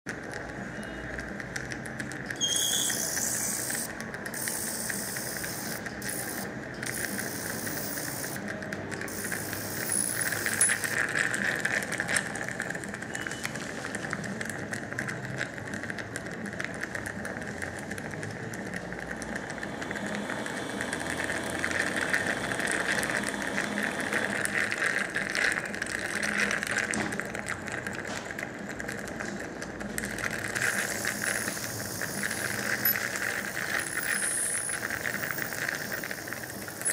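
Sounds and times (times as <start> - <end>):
ultrasonic surgical tool buzzing: 9.1 - 11.0, 30.6 - 36.9.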